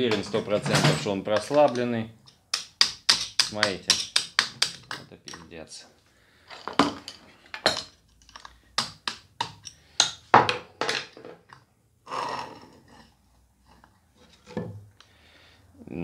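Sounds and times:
hammer tapping metal: 1.4s - 5.4s.

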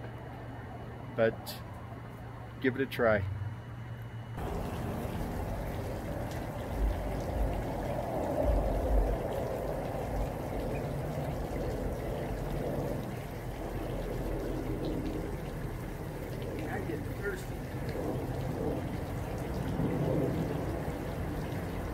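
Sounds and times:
low rumbles: 3.2s - 21.9s
small waterfall splashing: 4.4s - 21.9s
water pouring from watering can: 4.4s - 21.9s.

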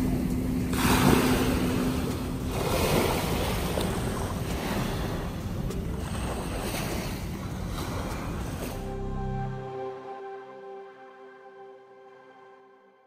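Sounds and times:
small waves on pebble beach: 0.0s - 5.3s.

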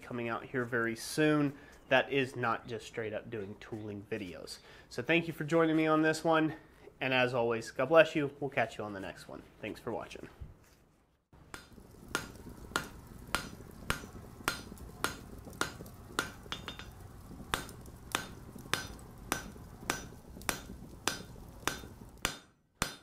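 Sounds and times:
hammer striking an anvil: 11.6s - 17.0s, 17.6s - 23.0s.

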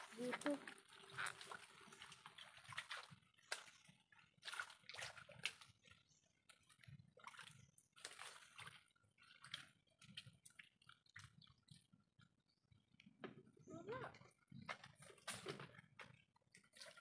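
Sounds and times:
hands squelching in wet mud: 0.0s - 11.7s.

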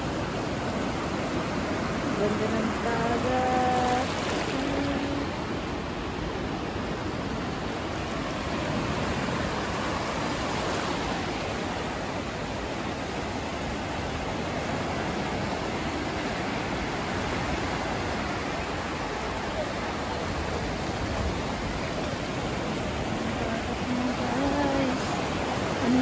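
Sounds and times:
small waves washing on sand: 0.0s - 26.0s.

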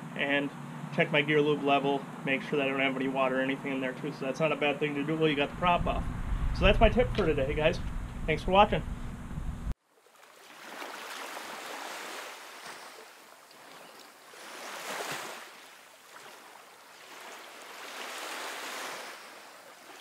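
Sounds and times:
surf-like rushing noise: 17.0s - 19.9s.

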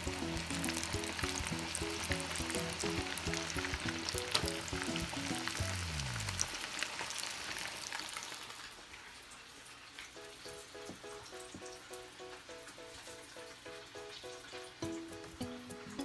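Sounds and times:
background music: 0.0s - 6.6s, 10.2s - 16.0s
fish deep-frying in oil: 0.0s - 16.0s.

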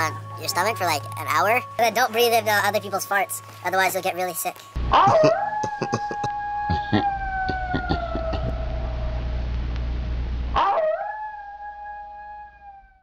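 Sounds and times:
low hum: 4.8s - 13.0s
wolf-like howls: 4.9s - 9.2s, 10.6s - 13.0s.

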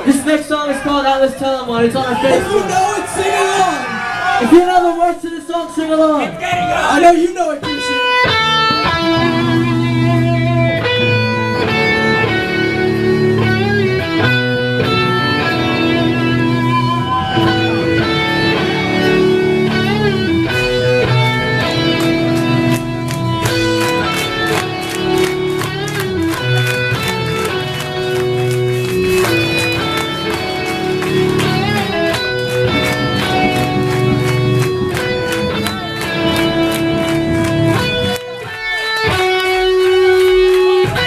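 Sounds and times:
electric guitar chords: 7.6s - 41.0s
drum hits: 30.7s - 37.3s.

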